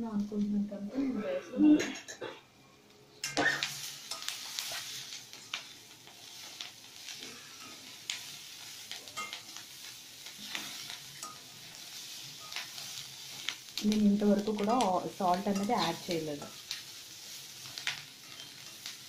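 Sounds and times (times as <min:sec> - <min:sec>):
vegetables sizzling in a pan: 0:03.0 - 0:19.0
metal spatula scraping a pan: 0:03.2 - 0:09.6, 0:10.2 - 0:13.5, 0:17.7 - 0:19.0.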